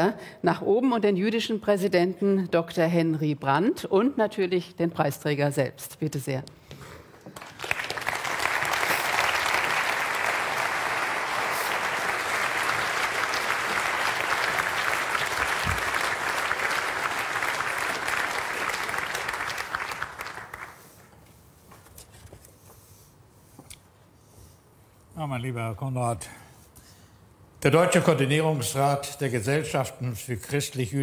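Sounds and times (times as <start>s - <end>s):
audience applauding: 7.3s - 21.0s.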